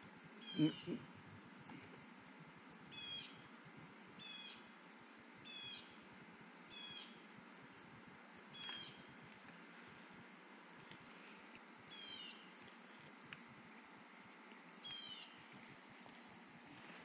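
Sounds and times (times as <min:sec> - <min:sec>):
background hiss: 0:00.0 - 0:17.0.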